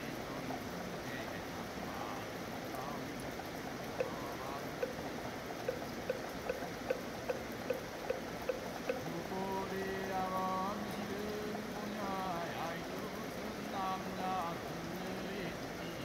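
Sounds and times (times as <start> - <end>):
man chanting: 0.0 - 3.2, 4.0 - 4.7, 8.9 - 16.0
steady rain: 0.0 - 16.0.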